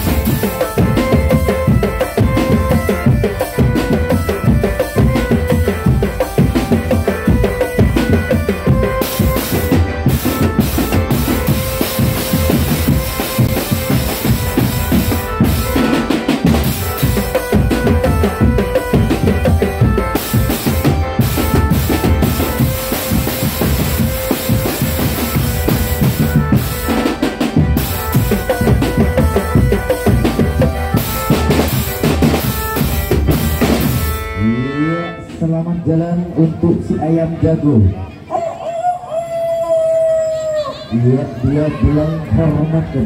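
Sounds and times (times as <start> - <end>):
bass drums: 0.0 - 34.4.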